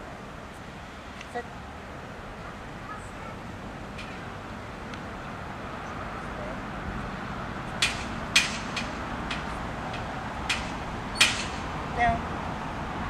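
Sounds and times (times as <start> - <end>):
distant road traffic hum: 0.0 - 13.0.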